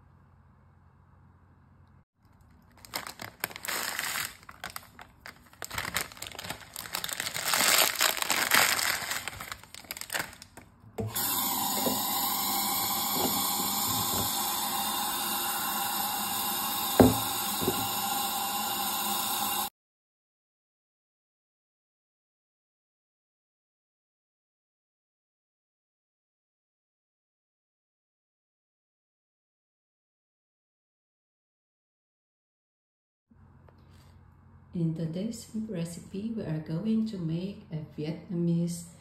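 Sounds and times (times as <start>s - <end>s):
dry noodles crinkling: 2.2s - 10.8s
tap running into bowl: 11.0s - 14.5s, 16.9s - 18.0s
knock against bowl: 17.0s - 17.9s.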